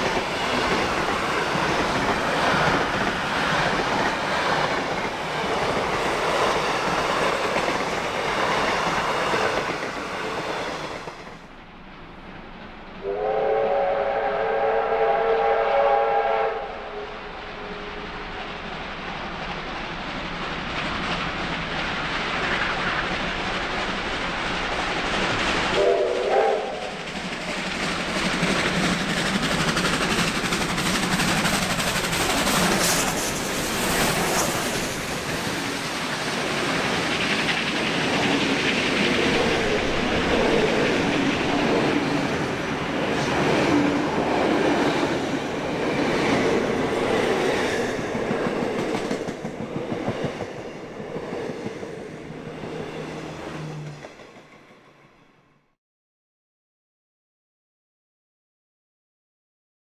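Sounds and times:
steam train passing: 0.0 - 55.8
train whistle blast: 13.0 - 18.3, 25.8 - 27.0
carriages clickety-clack: 26.8 - 51.8.

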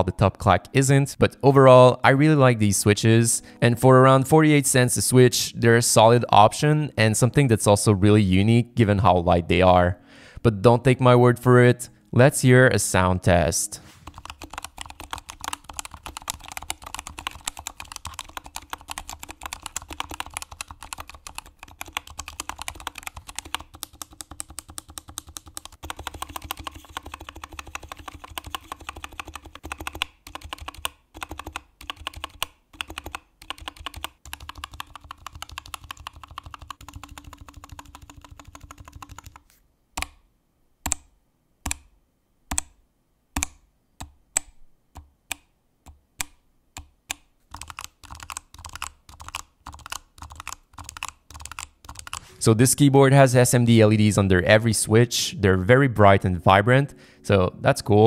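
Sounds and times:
mechanical keyboard typing: 14.0 - 40.2, 47.1 - 52.3.

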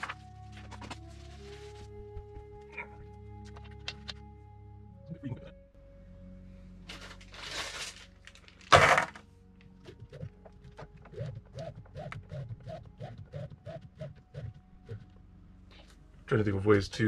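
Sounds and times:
plastic bag of steel balls crinkling: 6.9 - 9.2.

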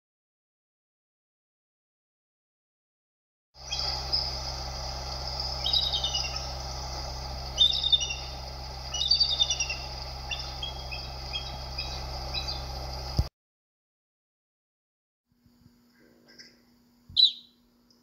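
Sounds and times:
eagle high chittering whistles: 3.6 - 13.2, 17.2 - 17.7
steady low hum: 3.6 - 13.3, 15.3 - 18.0.

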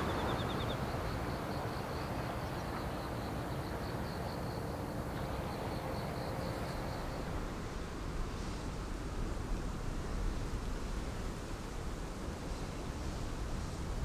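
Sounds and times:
low rumbling hiss: 0.0 - 14.0.

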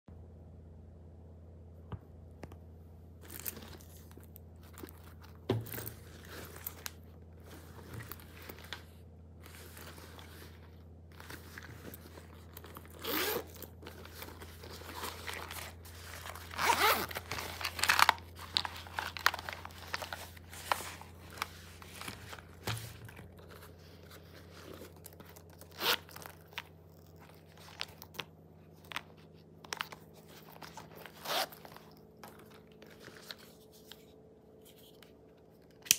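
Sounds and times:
leather pouches rustling and clicking: 3.2 - 34.0
metal zip opening: 9.4 - 20.1, 22.0 - 28.0, 29.8 - 32.6.

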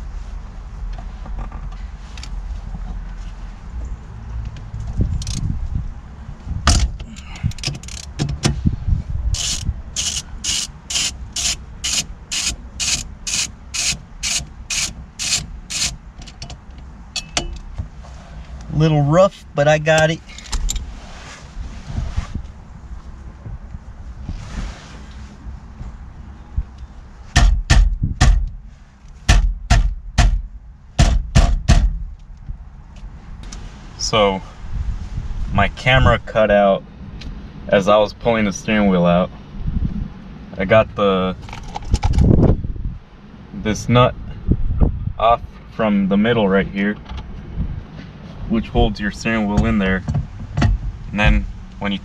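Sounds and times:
ratchet wrench clicking: 7.6 - 8.2, 9.4 - 16.5
steering wheel banged by hand: 29.3 - 32.0, 49.6 - 51.4.

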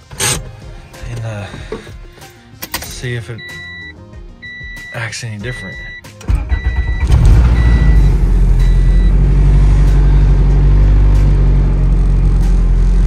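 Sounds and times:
short beeping tone: 3.4 - 10.4
car engine idling: 6.2 - 13.0.

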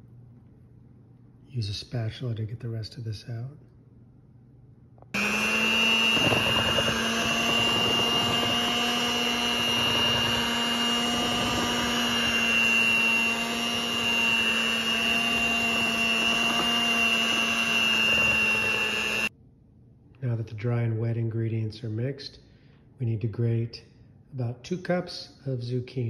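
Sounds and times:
beaters mixing batter in glass bowl: 5.2 - 19.3
electric hand mixer running: 5.2 - 19.3.

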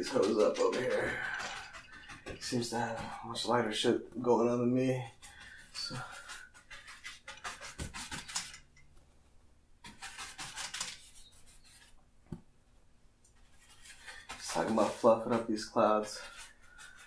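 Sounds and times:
brush scrubbing on canvas: 0.0 - 8.6, 9.8 - 12.0, 13.4 - 17.0.

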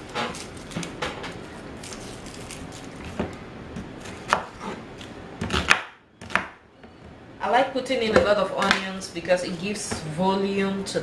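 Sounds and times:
onion skin rustling: 0.0 - 5.7.

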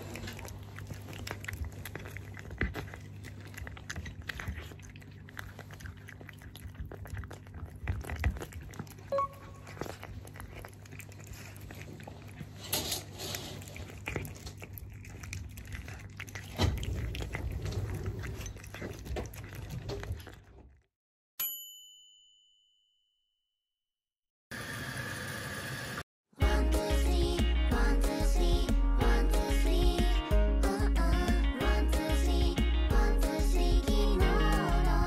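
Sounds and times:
cat chewing wet food: 0.0 - 20.8.

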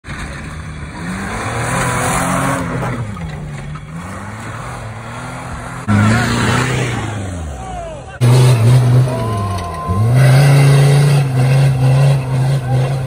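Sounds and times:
engine revving hard: 3.9 - 7.6, 8.2 - 13.0.

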